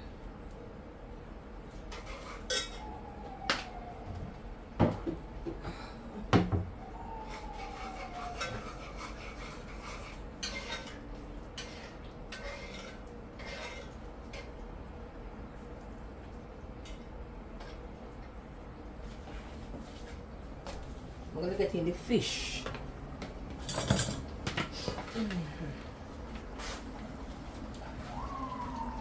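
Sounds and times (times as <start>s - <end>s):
utensils clinking on pots and dishes: 1.9s - 2.9s, 7.2s - 14.6s, 23.5s - 25.4s.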